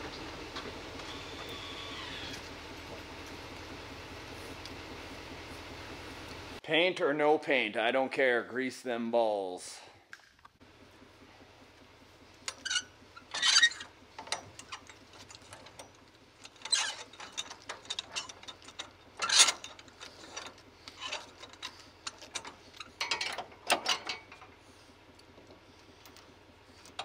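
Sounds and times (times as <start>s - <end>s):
metal clicks and rattles: 12.4s - 24.6s, 25.2s - 27.0s
chains rattling: 12.5s - 24.4s.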